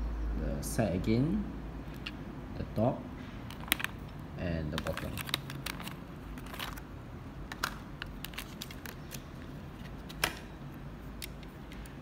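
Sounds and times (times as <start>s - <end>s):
plastic case clicks and crinkles: 3.5s - 6.8s, 7.5s - 10.5s.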